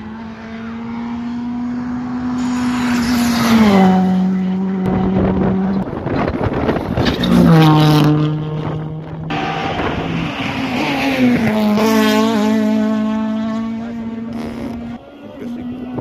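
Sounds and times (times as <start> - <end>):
rally car engine revving: 0.0 - 16.0
exhaust crackles: 14.0 - 16.0.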